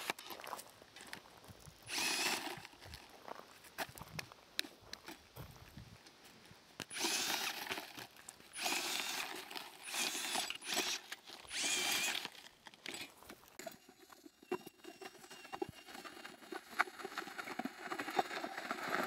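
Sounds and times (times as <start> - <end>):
tyres crunching over gravel: 0.0 - 19.0
small motor whining: 1.9 - 2.8, 6.9 - 16.6.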